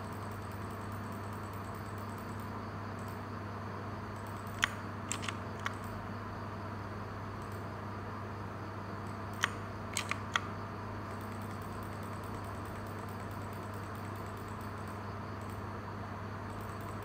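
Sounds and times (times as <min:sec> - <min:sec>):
low hum and hiss: 0:00.0 - 0:17.0
mechanical keyboard key clicks: 0:04.2 - 0:05.9, 0:09.4 - 0:10.5.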